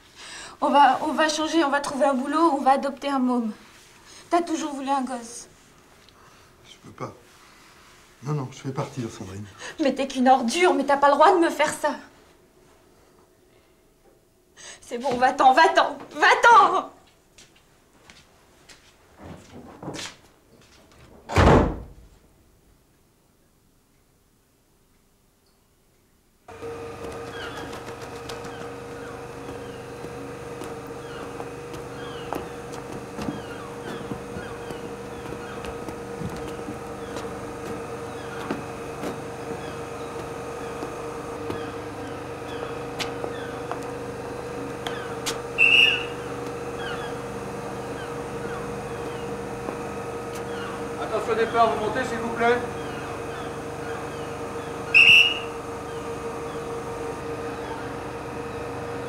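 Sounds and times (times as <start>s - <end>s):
standing train humming: 0.0s - 6.9s, 26.5s - 59.0s
door slamming: 21.2s - 22.1s
birds chirping: 26.5s - 59.0s
light footsteps: 26.8s - 52.0s
sharp whistle blast: 45.6s - 46.1s, 54.9s - 55.5s.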